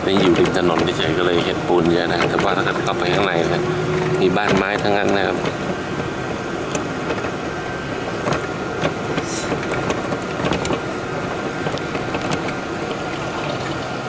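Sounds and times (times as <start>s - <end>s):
engine and road noise: 0.0s - 14.0s
clicks and rattles: 0.1s - 6.1s, 8.2s - 10.9s, 11.6s - 13.2s.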